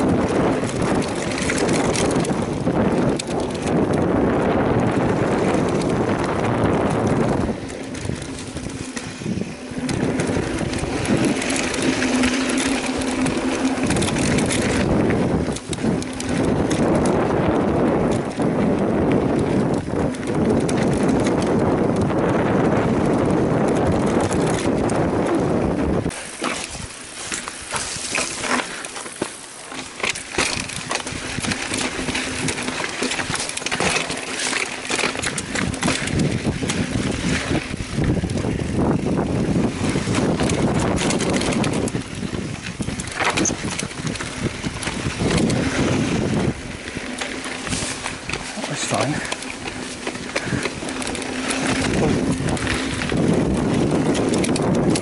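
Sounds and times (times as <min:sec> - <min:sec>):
wind buffeting microphone: 0:00.0 - 0:29.2, 0:29.9 - 0:55.0
bike clicks and knocks: 0:00.0 - 0:55.0
bike rattling on rough ground: 0:00.0 - 0:55.0.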